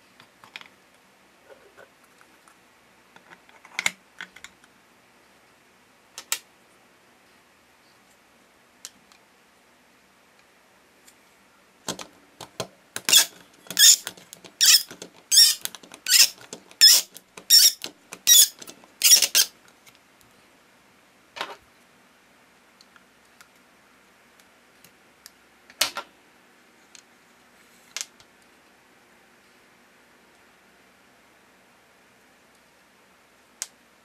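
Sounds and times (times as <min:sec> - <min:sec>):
plastic toy press squeaking: 0:13.0 - 0:19.5.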